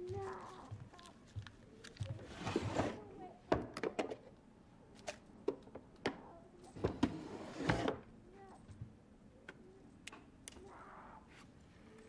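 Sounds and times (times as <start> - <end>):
scrape in drawer: 2.3 - 3.0, 6.8 - 8.0.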